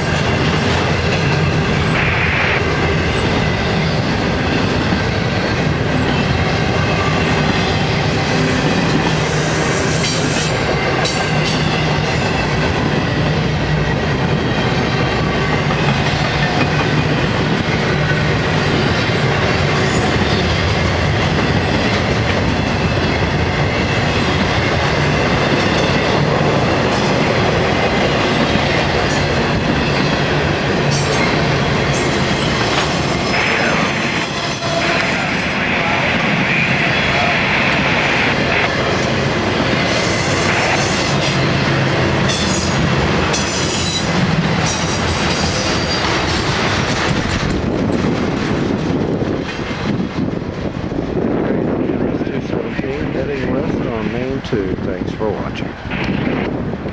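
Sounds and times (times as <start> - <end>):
steel wheels rumbling on rails: 0.0 - 56.9
high wheel squeal: 6.0 - 12.4, 29.8 - 38.2.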